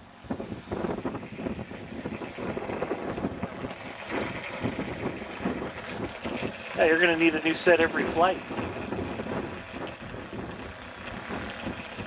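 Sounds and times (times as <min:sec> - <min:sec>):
model airplane motor and propeller: 0:00.0 - 0:12.0.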